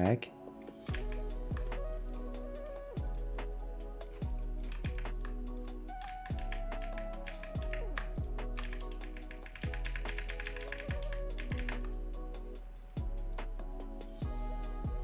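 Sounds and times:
chill electronic music: 0.0 - 15.0
keyboard typing clicks: 0.8 - 2.3, 4.1 - 11.9.

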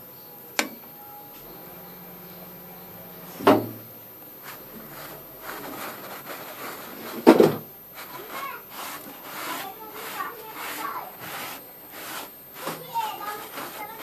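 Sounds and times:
cloth wiping metal plate: 4.4 - 14.0.

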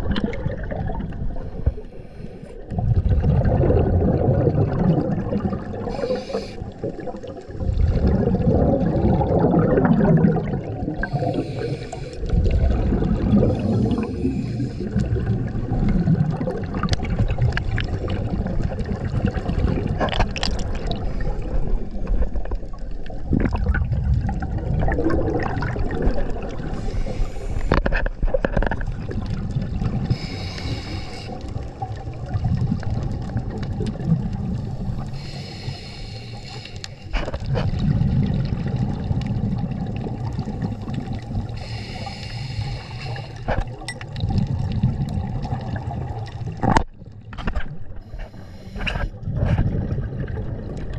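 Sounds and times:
bubbling exhaled air: 0.0 - 46.9, 47.7 - 50.9
hissing regulator inhales: 5.9 - 6.8, 11.0 - 12.3, 13.5 - 15.0, 26.8 - 27.8, 30.1 - 31.5, 34.7 - 37.1, 41.6 - 43.6, 48.0 - 49.2.

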